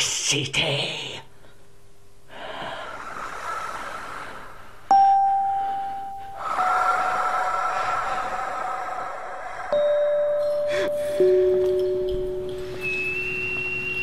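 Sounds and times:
bell-like chime ringing: 0:04.9 - 0:09.1, 0:09.7 - 0:14.0.

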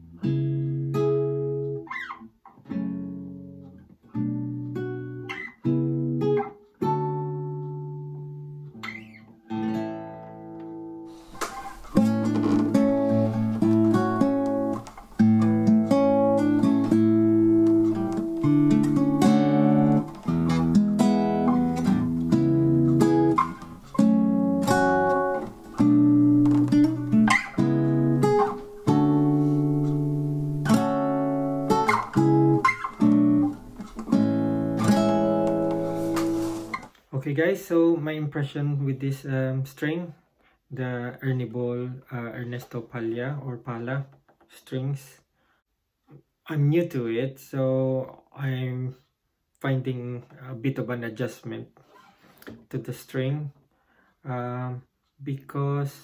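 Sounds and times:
classical guitar fingerstyle: 0:00.0 - 0:36.9.

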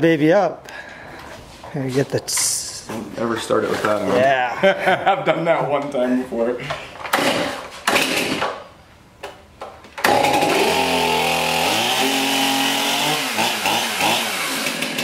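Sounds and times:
chainsaw pull-starting: 0:07.1 - 0:08.6, 0:10.0 - 0:15.0
chainsaw revving: 0:07.2 - 0:08.5, 0:10.0 - 0:15.0.

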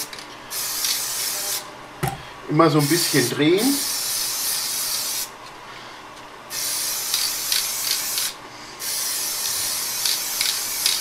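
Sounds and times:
aerosol can spraying: 0:00.0 - 0:01.6, 0:02.8 - 0:05.3, 0:06.5 - 0:11.0.

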